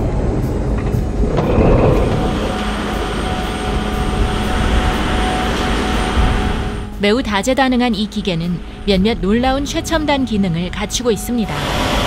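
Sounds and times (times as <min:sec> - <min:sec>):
engine and pump drone: 0:00.0 - 0:12.0
water jet rushing hiss: 0:11.5 - 0:12.0.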